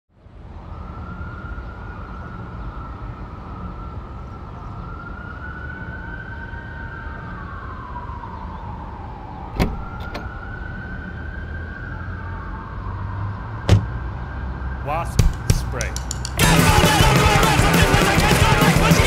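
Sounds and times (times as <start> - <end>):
low city rumble: 0.1 - 16.1
siren wailing: 0.6 - 15.2.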